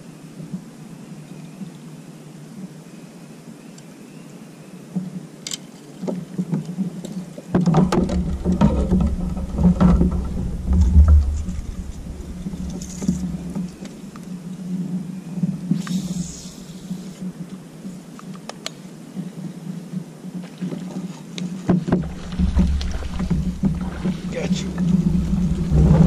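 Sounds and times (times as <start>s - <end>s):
kayak knocks and bumps: 7.6s - 14.3s, 21.6s - 26.0s
clatters: 7.8s - 14.3s
faint steady hum: 7.8s - 19.9s, 21.4s - 26.0s.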